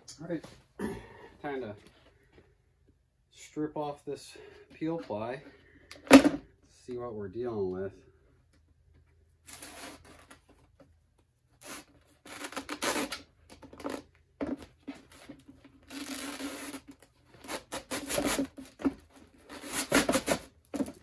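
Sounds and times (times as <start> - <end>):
fabric ripping off epoxy: 11.6 - 13.2, 15.9 - 16.9.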